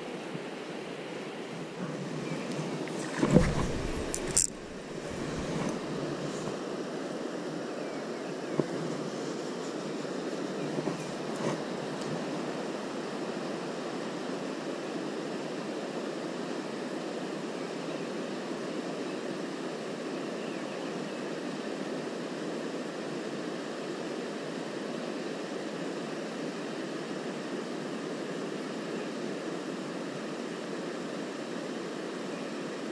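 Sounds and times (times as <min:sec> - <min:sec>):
river rushing: 0:02.6 - 0:07.6.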